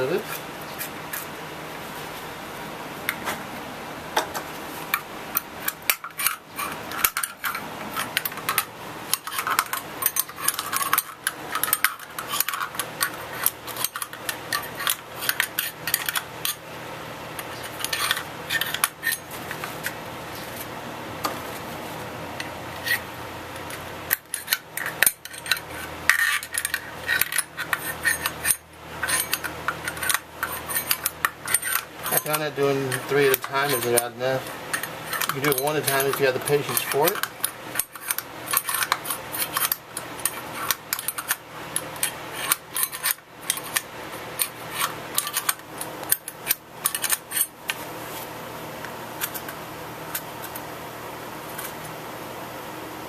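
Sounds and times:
fan running: 0:00.0 - 0:53.0
screwdriver scraping metal: 0:05.4 - 0:16.6, 0:17.4 - 0:19.7, 0:23.6 - 0:47.6.

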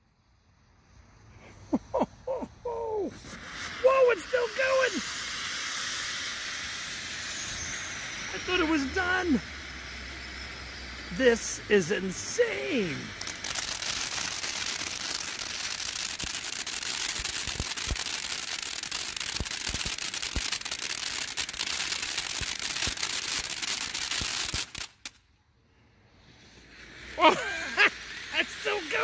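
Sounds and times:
firework fountain hissing: 0:00.0 - 0:29.0
crackling pops: 0:11.1 - 0:25.3.

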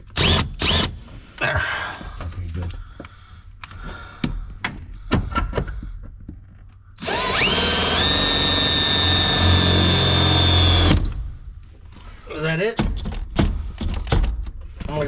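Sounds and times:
electric drill whining: 0:00.1 - 0:01.0, 0:07.0 - 0:11.2
tools knocking and clicking: 0:12.8 - 0:14.6.

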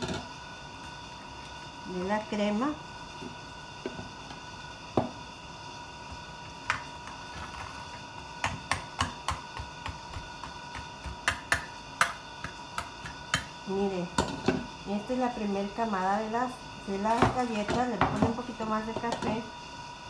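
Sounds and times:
crackers tapping metal pan: 0:08.4 - 0:13.6.

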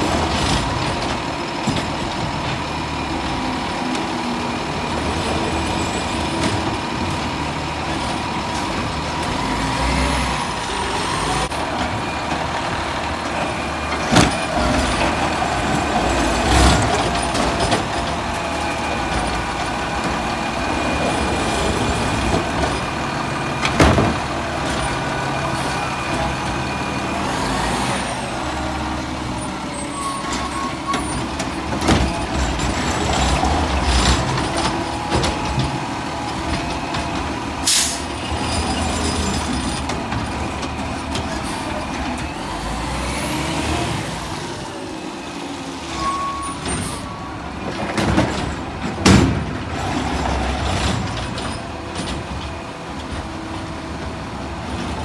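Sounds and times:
garbage truck engine running: 0:00.0 - 0:55.0
air brake hiss: 0:37.6 - 0:38.1
sharp bangs of carts: 0:47.8 - 0:52.4.

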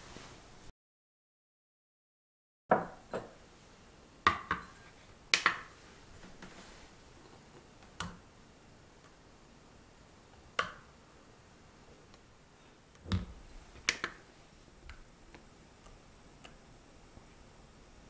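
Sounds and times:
glass bowl clinking: 0:04.3 - 0:04.9
soft scrape: 0:06.4 - 0:07.0.

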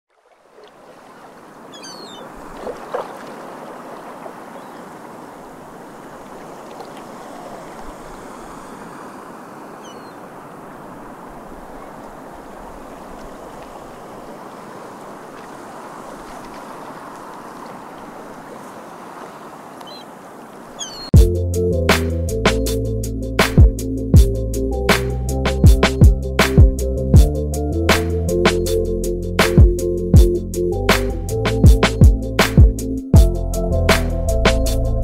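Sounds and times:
waves washing: 0:00.2 - 0:21.1
short high bird calls: 0:01.7 - 0:02.3, 0:09.5 - 0:10.3, 0:19.8 - 0:20.1, 0:20.7 - 0:21.2.

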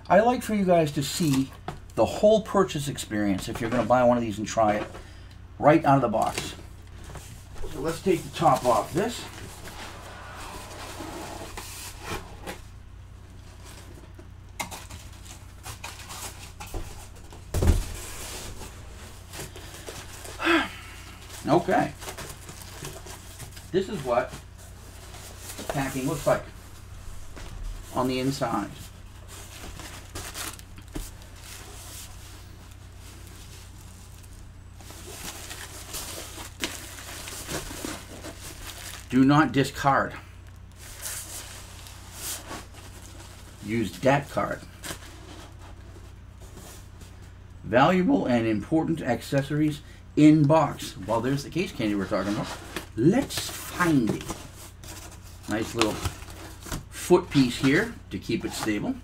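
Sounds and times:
steady low hum: 0:00.0 - 0:59.0
cardboard scraping and rustling: 0:06.2 - 0:12.7, 0:21.2 - 0:39.2, 0:51.6 - 0:59.0.

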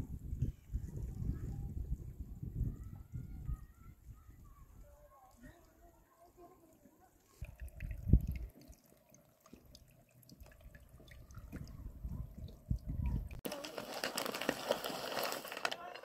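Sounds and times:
low rumbles on microphone: 0:00.0 - 0:04.8
spring water trickling over rock: 0:06.2 - 0:16.0.

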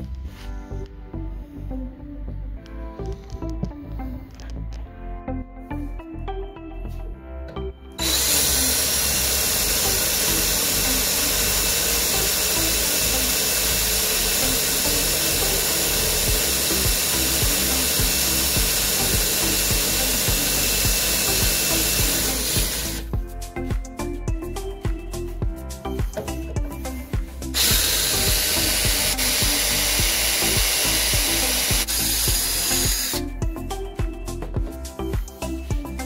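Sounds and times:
cordless drill boring sheet metal: 0:08.0 - 0:23.1, 0:27.5 - 0:33.4.

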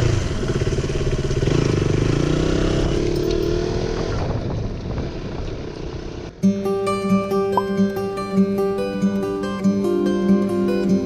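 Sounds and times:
motorcycle engine running: 0:00.0 - 0:06.4.

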